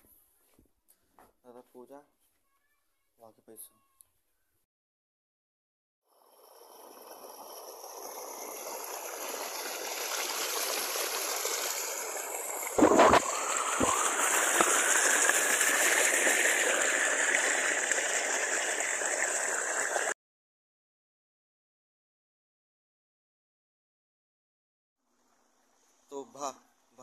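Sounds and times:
water rushing: 6.6s - 20.2s.

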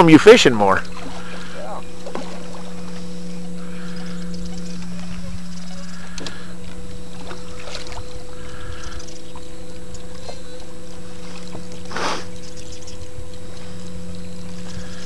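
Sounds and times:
boat motor humming: 0.0s - 15.0s
burst of hiss: 11.9s - 12.3s.

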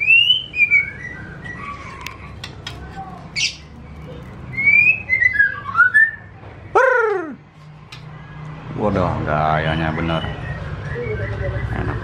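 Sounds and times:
bird singing whistled phrases: 0.0s - 1.8s, 4.5s - 6.3s, 10.0s - 12.0s.

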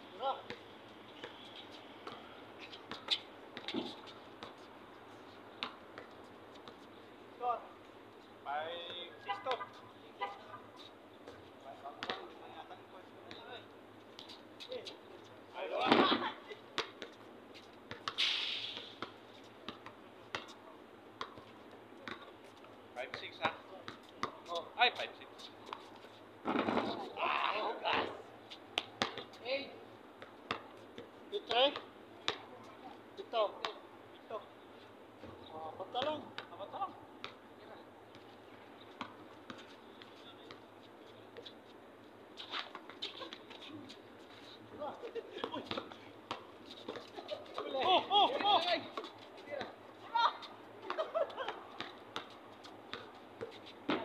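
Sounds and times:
faint steady hiss: 17.4s - 19.6s
short rattling hiss: 18.2s - 19.0s.

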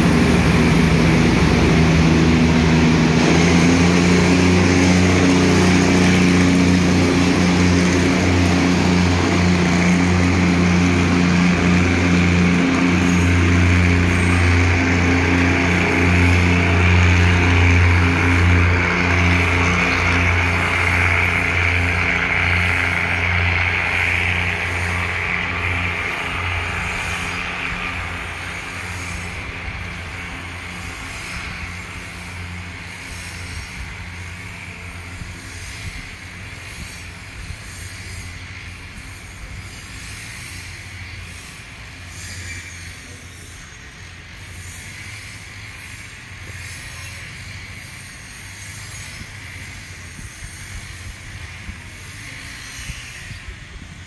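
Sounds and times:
diesel train engine drone: 0.0s - 54.0s.

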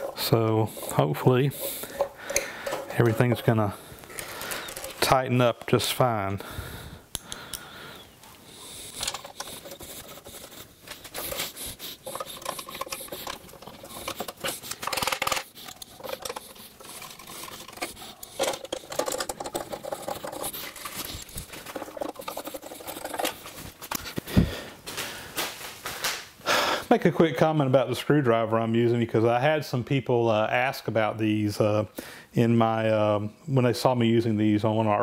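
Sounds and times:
screwdriver clicks and metal scrapes: 0.0s - 3.6s, 8.8s - 24.2s.

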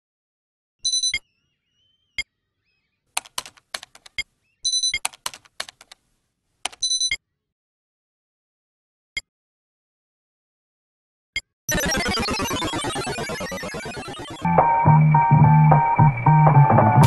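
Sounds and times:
computer keyboard typing: 3.2s - 6.0s, 6.6s - 7.1s.

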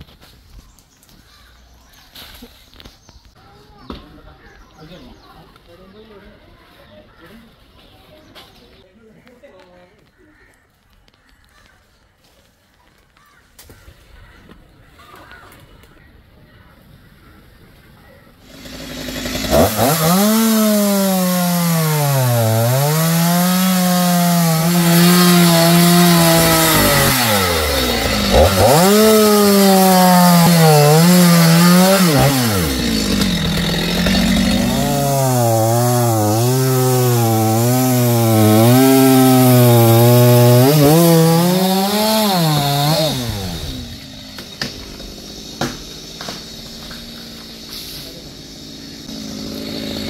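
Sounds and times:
chainsaw cutting wood: 18.4s - 50.0s.

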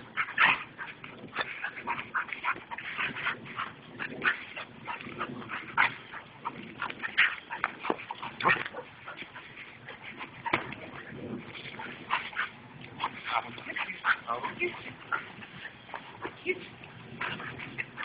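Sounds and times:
dog play-fighting vocalizations: 0.0s - 18.0s.

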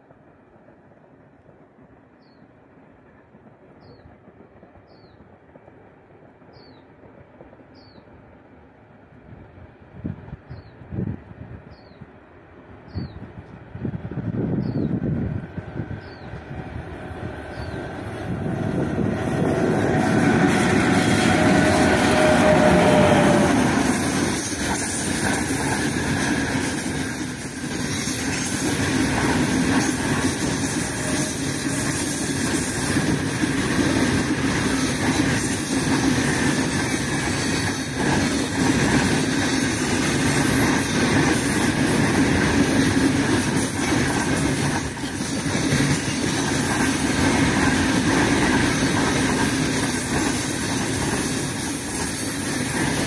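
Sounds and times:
electric locomotive passing: 0.0s - 53.0s
wagon wheels rumbling on rail: 13.0s - 53.0s
wheels clacking over rail joints: 15.2s - 53.0s.

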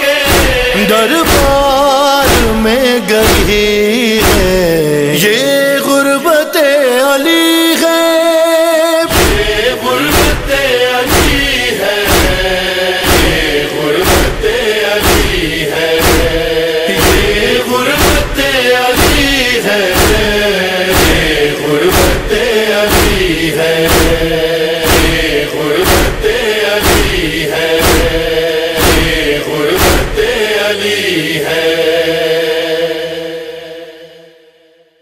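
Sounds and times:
male chorus chanting lament: 0.0s - 34.7s
chest-strikes beat: 9.1s - 30.3s.

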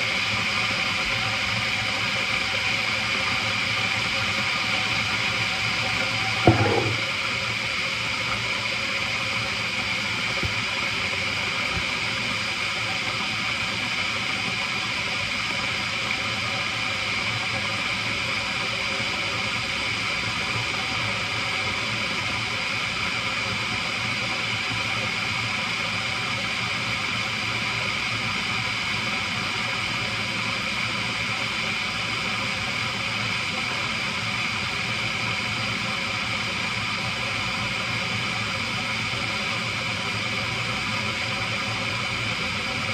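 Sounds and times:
electric kettle hissing: 0.0s - 24.2s.

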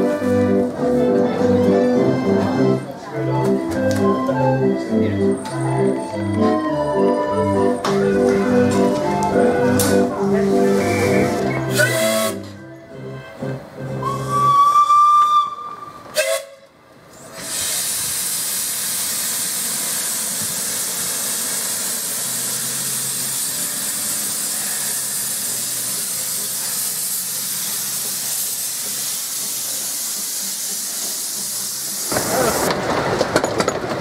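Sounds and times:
steam locomotive whistle: 5.8s - 12.4s, 13.9s - 16.7s, 21.5s - 30.7s
steam venting hiss: 17.3s - 32.9s.

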